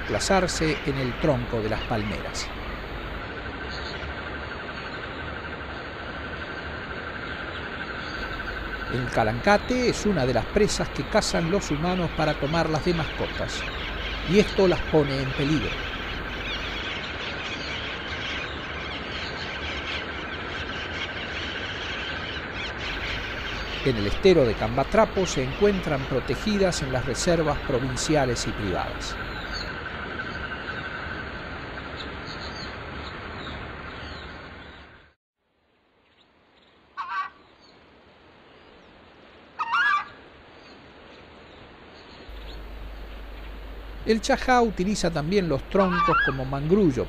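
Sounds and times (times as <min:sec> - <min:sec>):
birds chirping and squealing: 0:00.0 - 0:05.1, 0:07.6 - 0:30.9, 0:42.0 - 0:47.0
faint steady background: 0:00.0 - 0:47.0
high bird trill: 0:07.9 - 0:30.9, 0:42.3 - 0:47.0.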